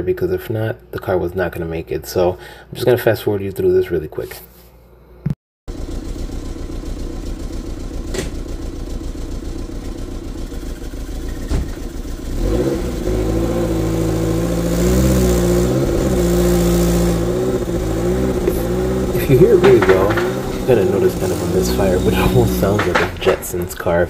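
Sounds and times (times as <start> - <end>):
engine running roughly: 5.7 - 24.0.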